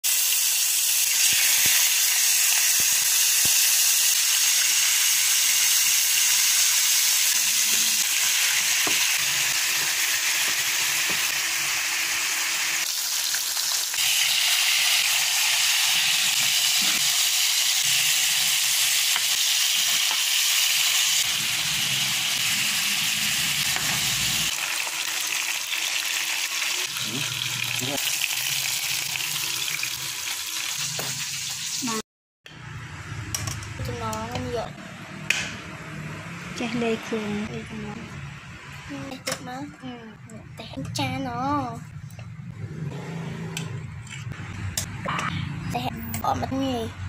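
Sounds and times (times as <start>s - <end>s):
fish sizzling in hot oil: 0.0s - 32.0s.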